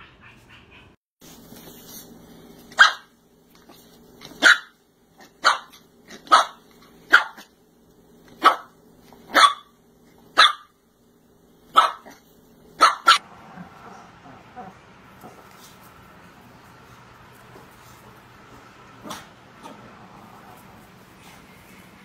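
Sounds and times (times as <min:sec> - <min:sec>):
puppy barking: 0:02.7 - 0:03.1, 0:04.2 - 0:07.5, 0:08.4 - 0:10.8, 0:11.7 - 0:13.3.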